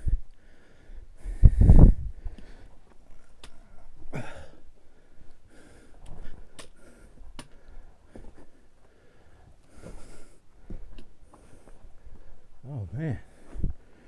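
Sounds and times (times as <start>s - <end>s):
person breathing hard: 0.0s - 12.5s, 13.2s - 14.0s
sharp clicks: 6.0s - 6.8s.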